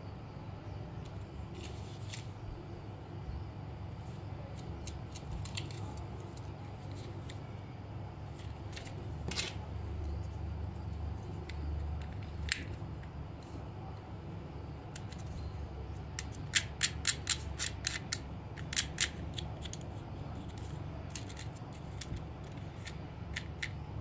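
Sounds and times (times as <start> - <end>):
plastic toy clicks and snaps: 16.2 - 19.8.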